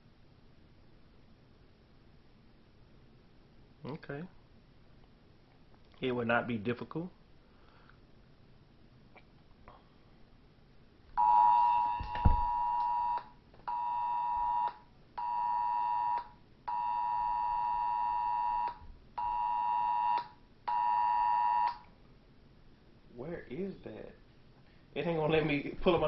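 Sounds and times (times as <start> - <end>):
thump: 12.0 - 12.6.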